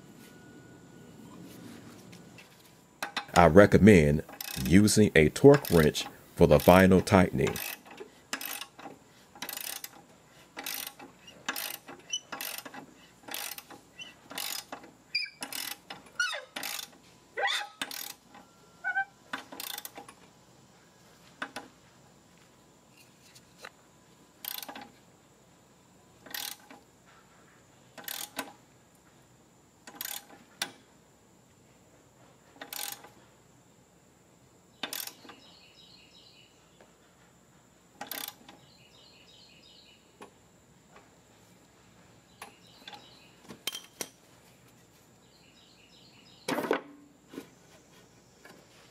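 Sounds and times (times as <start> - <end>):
ratchet wrench clicking: 4.3 - 4.7, 5.5 - 6.0, 7.5 - 10.0, 10.6 - 17.0, 17.8 - 18.2, 19.4 - 20.0, 24.4 - 24.8, 26.2 - 26.8, 28.0 - 28.5, 29.9 - 30.7, 32.6 - 33.1, 34.8 - 35.2, 38.0 - 38.4.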